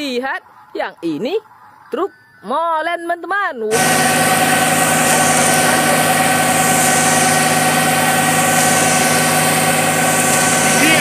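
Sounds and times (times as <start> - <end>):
concrete pouring down chute hiss: 3.7 - 11.0
mixer truck diesel engine droning: 3.7 - 11.0.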